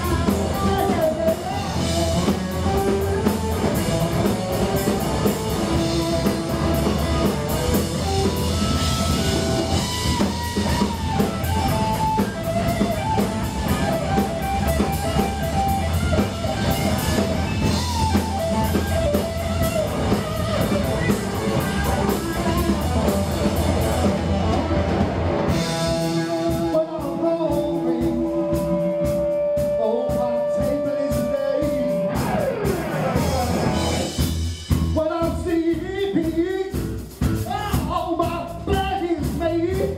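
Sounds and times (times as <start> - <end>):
guitar sliding down in pitch: 0.0 - 27.0, 31.3 - 34.3
live rock band playing: 0.0 - 39.9.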